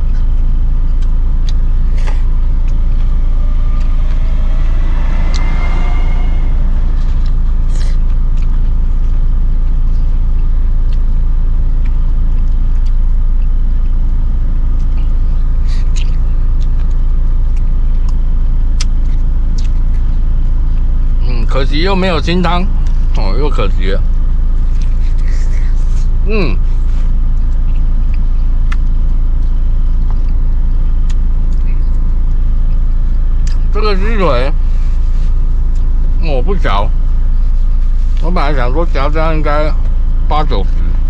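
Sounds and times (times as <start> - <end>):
road traffic rumble: 0.0 - 41.0
vehicle passing: 1.5 - 9.6.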